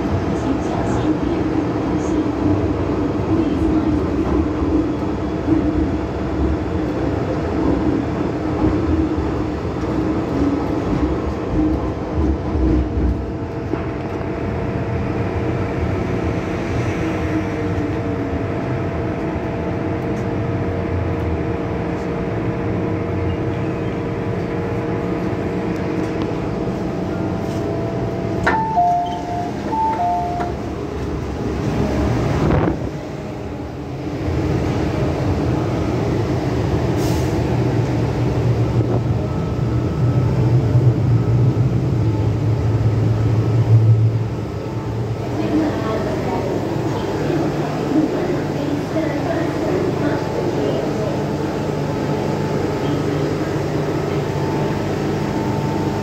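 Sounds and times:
underground train rumbling: 0:00.0 - 0:56.0
two-tone electronic chime: 0:28.5 - 0:30.6.

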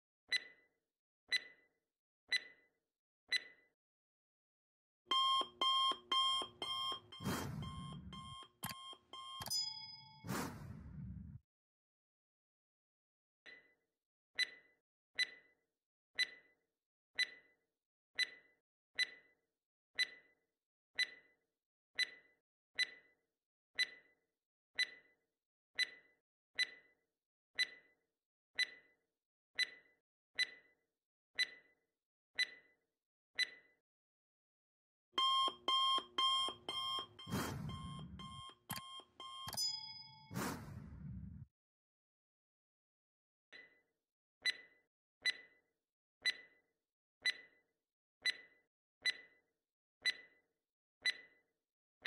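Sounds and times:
loud alarm ringing: 0:05.1 - 0:10.2, 0:35.2 - 0:40.4
clock ticking: 0:05.1 - 0:10.6, 0:35.2 - 0:40.8, 0:50.0 - 0:50.3.

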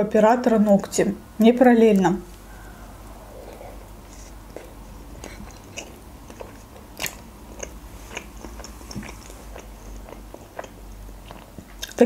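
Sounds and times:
close chewing mouth clicks: 0:03.5 - 0:12.0.

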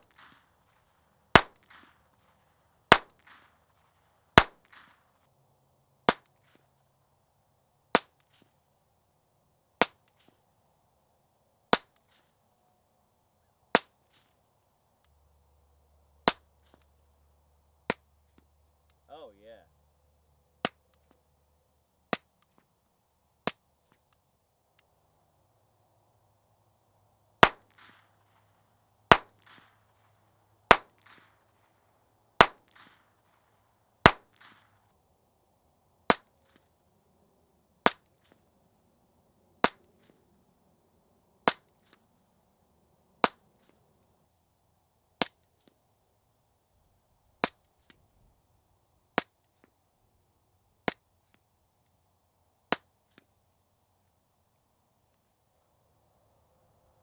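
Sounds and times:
pistol shots: 0:00.0 - 0:05.1, 0:27.4 - 0:28.5, 0:29.1 - 0:30.1, 0:30.7 - 0:31.6, 0:32.4 - 0:33.3, 0:34.0 - 0:34.8, 0:36.1 - 0:36.6, 0:39.6 - 0:40.2, 0:41.4 - 0:42.0, 0:43.2 - 0:43.7
sharp pistol cracks with echo: 0:00.0 - 0:05.2, 0:06.0 - 0:06.7, 0:07.9 - 0:08.6, 0:09.8 - 0:10.4, 0:11.7 - 0:12.4, 0:13.7 - 0:14.4, 0:16.2 - 0:16.9, 0:17.8 - 0:19.0, 0:20.6 - 0:21.2, 0:22.1 - 0:22.6, 0:23.4 - 0:23.7, 0:27.4 - 0:34.8, 0:36.1 - 0:36.7, 0:37.8 - 0:38.4, 0:39.6 - 0:40.2, 0:41.4 - 0:42.0, 0:43.2 - 0:43.8, 0:45.2 - 0:45.7, 0:47.4 - 0:48.0, 0:49.2 - 0:49.7, 0:50.8 - 0:51.4, 0:52.7 - 0:53.2
suppressed pistol shots: 0:01.3 - 0:03.8, 0:04.4 - 0:05.0, 0:27.4 - 0:28.1, 0:29.1 - 0:30.0, 0:30.7 - 0:31.3, 0:32.4 - 0:33.1, 0:34.0 - 0:34.7.

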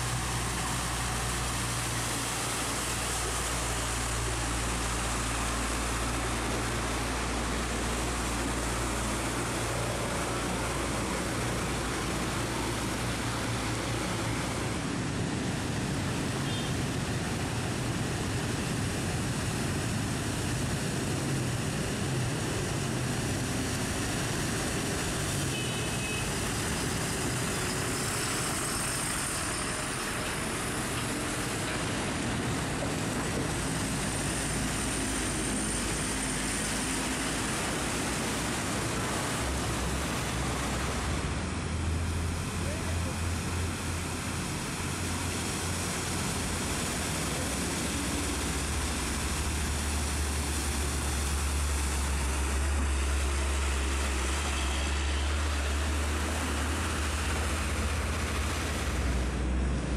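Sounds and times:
heavy rain: 0:00.0 - 0:59.9
traffic on a flooded road: 0:00.0 - 0:59.9.

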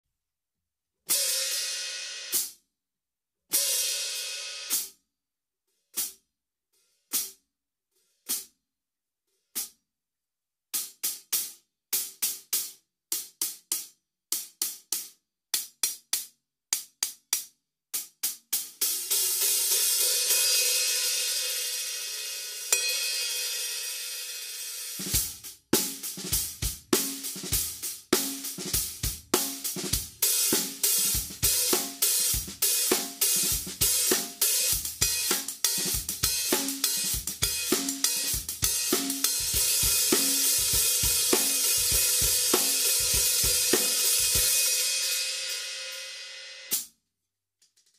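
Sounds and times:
hi-hats played with a stick: 0:01.1 - 0:02.6, 0:03.5 - 0:05.0, 0:05.8 - 0:06.2, 0:06.8 - 0:07.4, 0:08.0 - 0:08.6, 0:09.4 - 0:09.8, 0:10.8 - 0:46.9
snare drum: 0:25.0 - 0:46.0
bass drum: 0:25.1 - 0:44.7.

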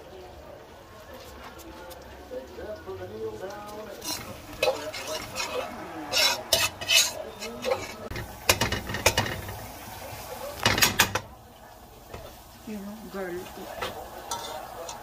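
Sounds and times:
garlic frying in oil: 0:00.0 - 0:15.0
metal spatula scraping a wok: 0:03.9 - 0:11.2, 0:13.7 - 0:15.0.

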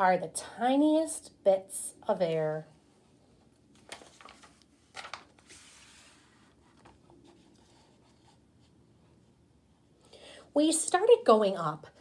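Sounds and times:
soft paper rustle: 0:03.4 - 0:09.9.

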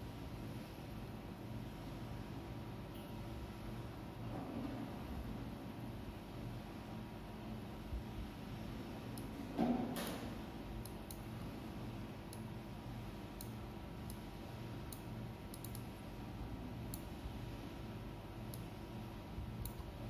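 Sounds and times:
computer mouse buttons clicking: 0:14.9 - 0:15.9.

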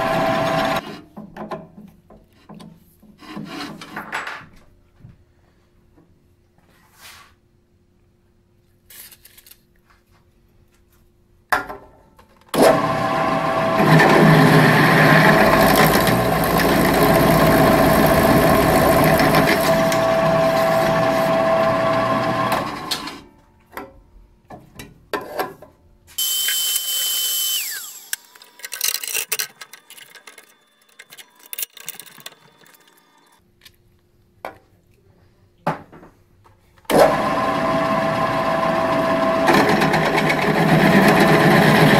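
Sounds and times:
drill press drilling steel: 0:00.0 - 0:00.8, 0:12.6 - 0:23.2, 0:26.2 - 0:33.4.

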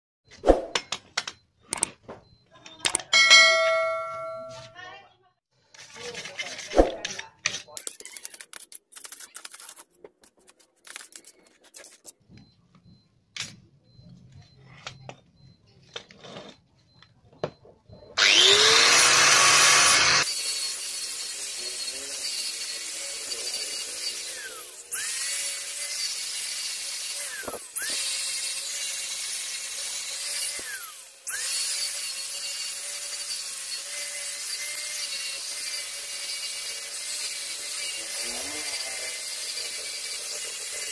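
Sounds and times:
angle grinder on metal: 0:18.2 - 0:40.9.

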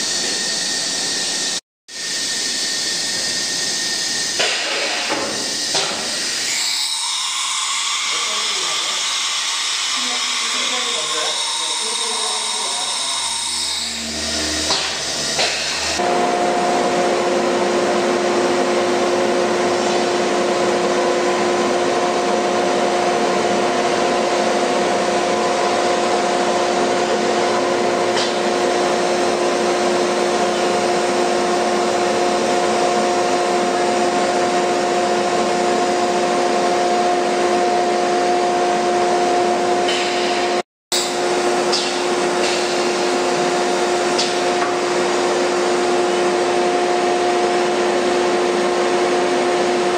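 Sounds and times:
router machine airy rushing: 0:00.0 - 0:17.3
machine hum: 0:05.4 - 0:19.6.

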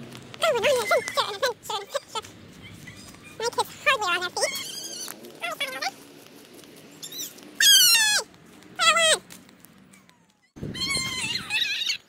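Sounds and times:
children shrieking: 0:00.6 - 0:03.4, 0:04.4 - 0:05.2, 0:10.4 - 0:12.0.

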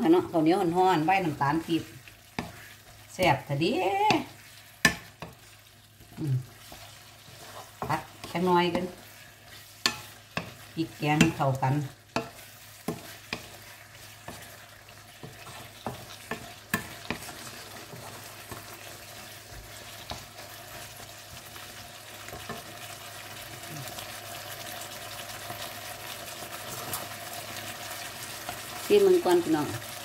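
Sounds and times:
food sizzling in a wok: 0:00.0 - 0:30.0
wooden spatula knocking a wok: 0:04.0 - 0:05.4, 0:07.7 - 0:09.0, 0:09.8 - 0:13.6, 0:15.2 - 0:18.6.

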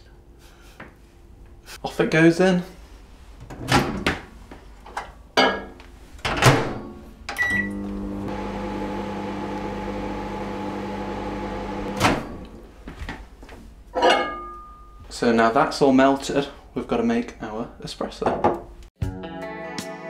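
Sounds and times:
microwave oven humming: 0:07.3 - 0:12.7
microwave beep: 0:07.4 - 0:11.9.

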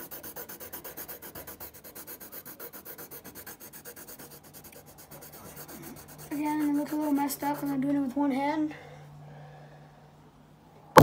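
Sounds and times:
pencil shading on paper: 0:00.0 - 0:08.0.

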